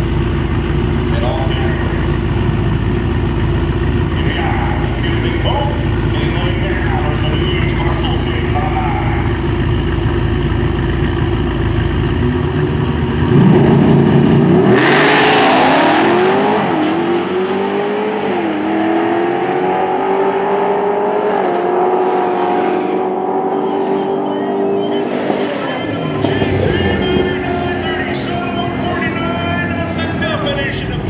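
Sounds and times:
drag car engines rumbling: 0.0 - 31.0
cars launching at full throttle: 11.6 - 31.0.

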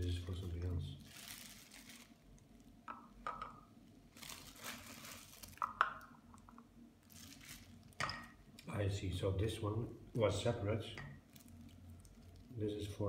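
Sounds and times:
rustling: 0.4 - 2.4, 4.0 - 5.8, 7.0 - 8.0.

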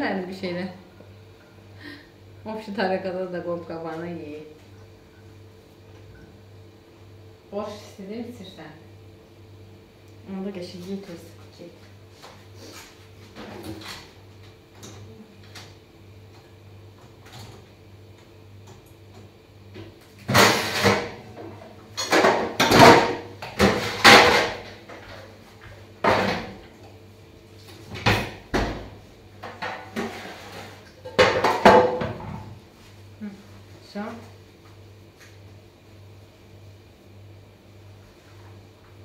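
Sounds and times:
kitchen items knocking and rattling: 22.0 - 25.2, 27.9 - 32.5.

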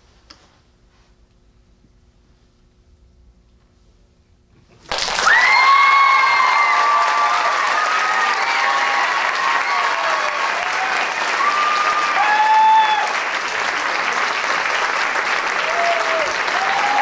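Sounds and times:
audience applauding: 4.9 - 17.0
shouted whoops and cheers: 5.1 - 13.3, 15.6 - 17.0.

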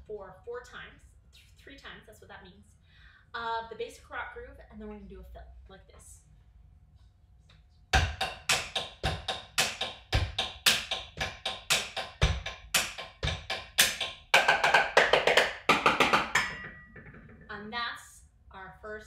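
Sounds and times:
rock beat drummed on plastic bowls: 8.0 - 17.6.

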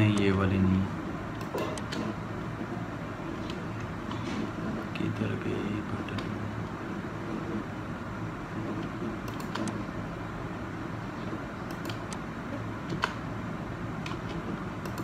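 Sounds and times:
steady low hum: 0.0 - 15.0
computer mouse clicks: 1.3 - 2.2, 8.6 - 9.8, 11.6 - 12.2, 12.9 - 13.2, 14.0 - 15.0.

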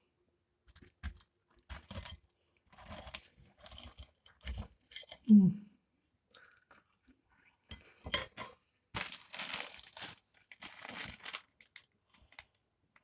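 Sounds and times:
food packaging crinkling: 9.0 - 13.0.

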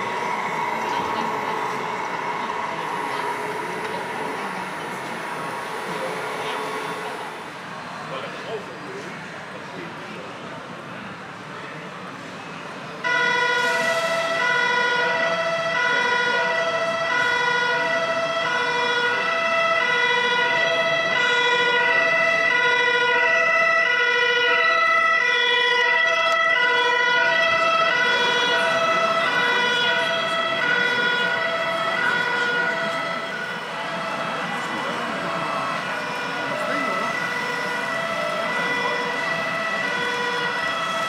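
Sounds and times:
two-tone fire siren: 0.0 - 7.9, 13.0 - 41.0
steady high tone: 0.0 - 8.8, 25.8 - 41.0.

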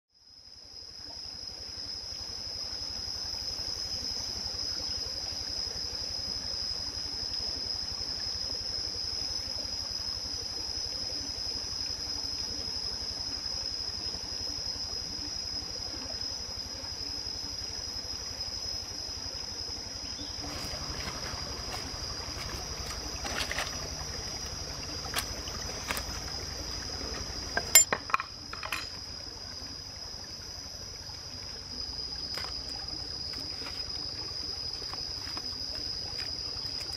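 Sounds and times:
stream trickling over rocks: 0.7 - 36.9
utensils knocking on stones: 27.6 - 29.0.

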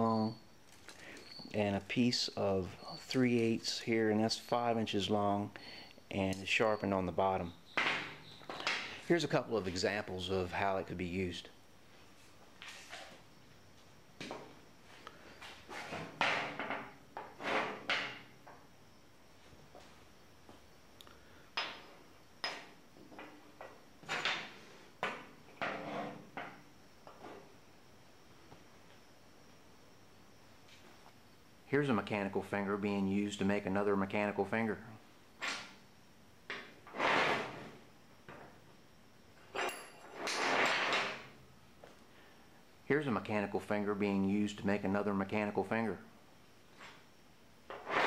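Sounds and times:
sharp ringing clink: 39.6 - 40.0.

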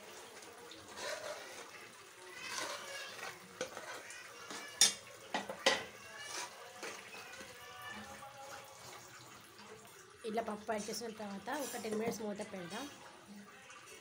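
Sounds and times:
dal pouring into pan: 0.0 - 10.2
spoon scraping metal pan: 0.8 - 8.1, 10.8 - 12.4.

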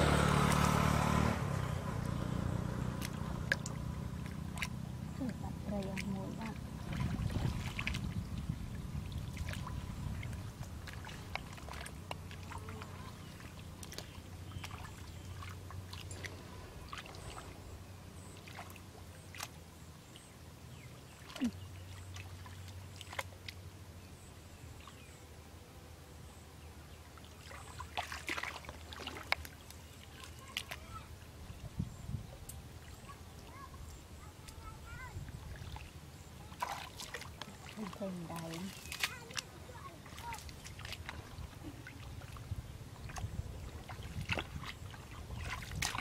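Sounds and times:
low hum: 0.0 - 27.2
hands splashing in muddy water: 3.0 - 17.6, 18.3 - 19.6, 27.3 - 30.9, 35.4 - 46.0.

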